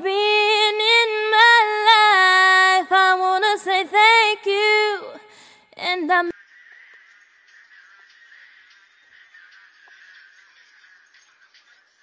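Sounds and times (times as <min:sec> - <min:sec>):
woman singing: 0:00.0 - 0:06.3.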